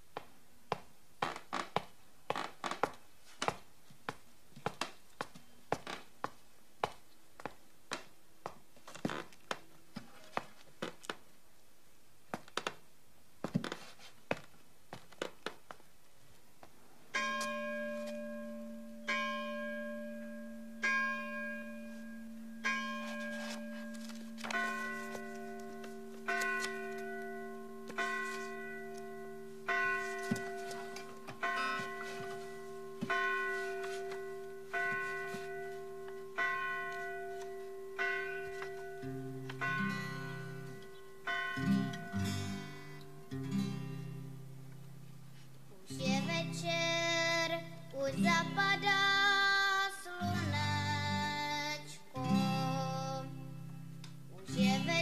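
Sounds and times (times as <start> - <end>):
church bells tolling: 17.1 - 43.3.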